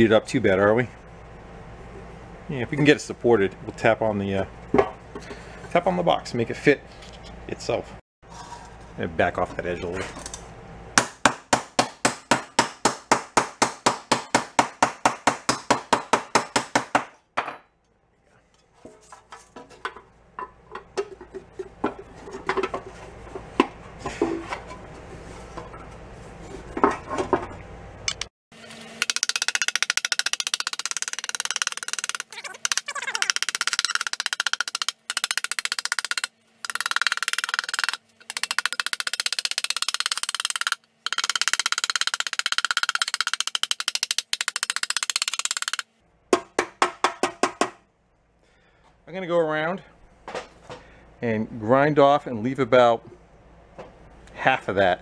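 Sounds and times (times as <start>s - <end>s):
knocks and handling of parts: 4.7s - 5.4s, 11.0s - 17.9s, 18.6s - 24.9s, 29.0s - 47.9s, 50.2s - 50.9s.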